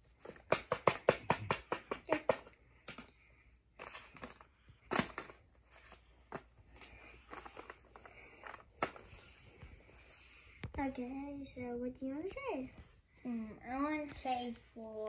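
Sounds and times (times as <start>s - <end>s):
paper rustling and crinkling: 3.8s - 10.2s.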